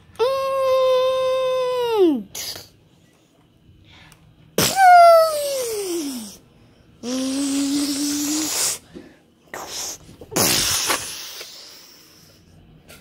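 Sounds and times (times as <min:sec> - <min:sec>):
mouth-made hissing blast: 0:07.0 - 0:08.9, 0:09.5 - 0:12.3.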